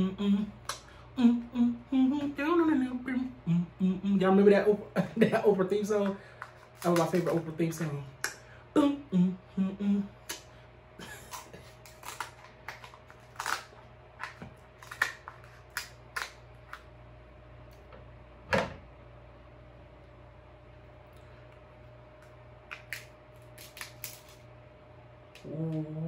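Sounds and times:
person humming with enjoyment: 0.0 - 4.4, 8.7 - 10.4, 25.4 - 26.0
crab shell cracking: 11.3 - 16.8, 22.2 - 24.4.

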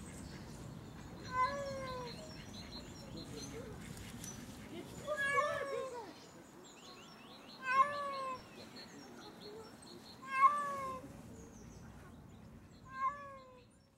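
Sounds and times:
cat meowing: 10.2 - 11.0, 12.9 - 13.6.

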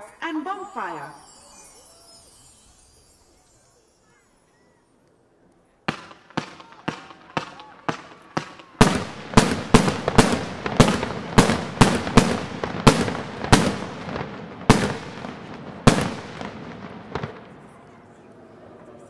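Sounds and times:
fireworks bursting with sharp bangs: 5.9 - 18.1.

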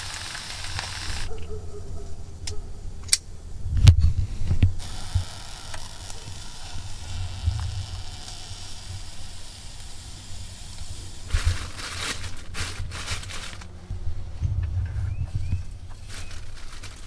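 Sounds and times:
steady low rumble: 8.8 - 16.0
plastic bag crinkling: 10.3 - 13.8, 15.9 - 17.0.

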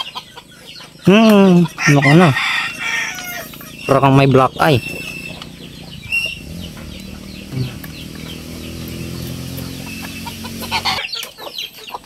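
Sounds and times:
chickens clucking: 0.0 - 12.0
steady low hum: 1.6 - 11.0.

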